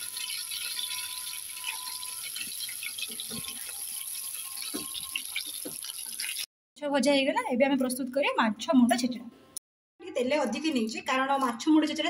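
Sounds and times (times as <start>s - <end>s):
fish sizzling in hot oil: 0.0s - 6.5s.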